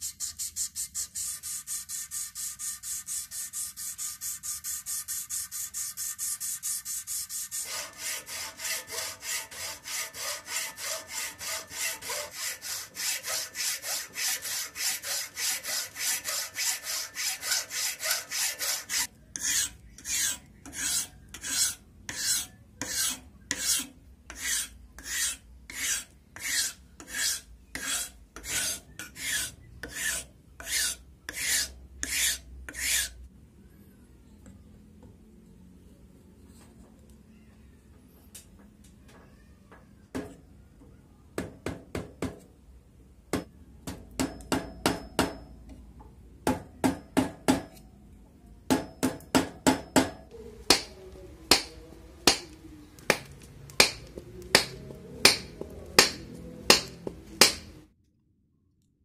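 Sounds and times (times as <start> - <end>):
sandpaper on wood: 0.0 - 33.1
file rasping wood: 1.2 - 33.1, 53.8 - 57.7
hacksaw cutting wood: 7.5 - 23.8, 53.8 - 57.7.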